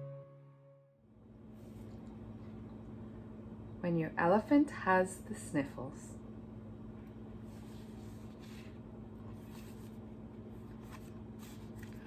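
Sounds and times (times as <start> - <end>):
steady low hum: 0.0 - 12.0
book pages rustling: 7.5 - 12.0.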